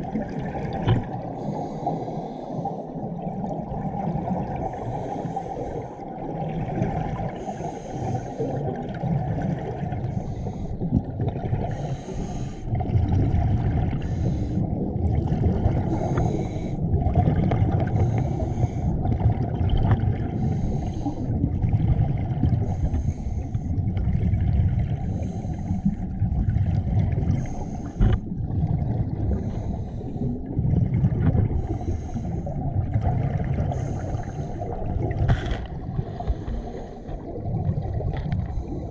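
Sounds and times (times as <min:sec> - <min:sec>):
exhaled bubbles rumbling: 0:00.0 - 0:38.9
regulator hiss on inhale: 0:01.4 - 0:02.9, 0:04.7 - 0:06.0, 0:07.4 - 0:08.6, 0:11.7 - 0:12.7, 0:14.0 - 0:14.6, 0:15.9 - 0:16.8, 0:17.9 - 0:18.9, 0:20.4 - 0:21.3, 0:22.6 - 0:23.8, 0:25.1 - 0:26.0, 0:27.4 - 0:28.2, 0:29.3 - 0:30.4, 0:31.6 - 0:32.5, 0:33.7 - 0:34.7.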